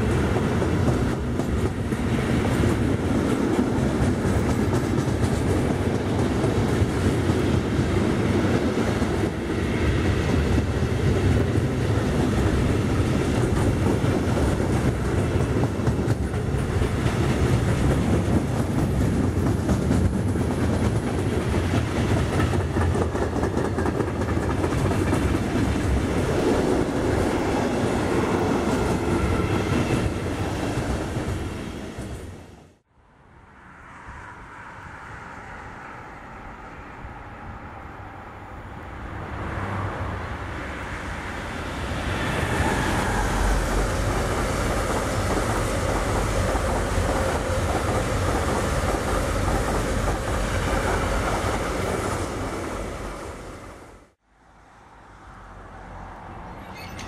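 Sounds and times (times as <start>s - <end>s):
train wheels clickety-clack: 0.0s - 32.4s, 42.0s - 53.2s
freight train wheels rumbling: 0.0s - 32.9s, 35.3s - 54.2s.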